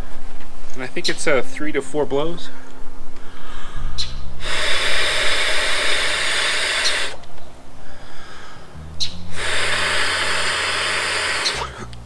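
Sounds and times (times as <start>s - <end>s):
quick intake of breath: 3.2s - 7.2s, 7.8s - 11.9s
breath blown into pillow nozzle: 4.4s - 7.2s, 9.3s - 12.0s.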